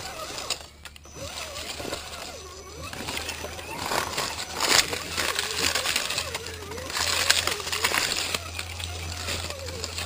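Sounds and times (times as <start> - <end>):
toy car motor whine: 0.0 - 10.0
tyres crunching over dirt and leaves: 0.0 - 10.0.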